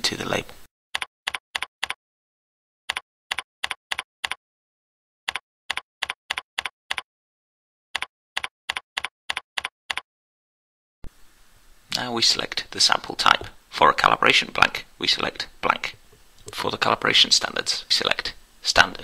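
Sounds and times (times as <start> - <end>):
computer keyboard typing: 1.0 - 2.0, 2.9 - 4.4, 5.3 - 7.0, 8.0 - 10.0.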